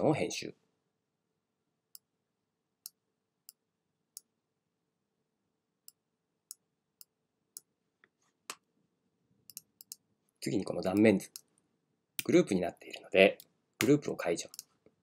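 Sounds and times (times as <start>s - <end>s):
computer mouse clicks: 9.5s - 10.0s.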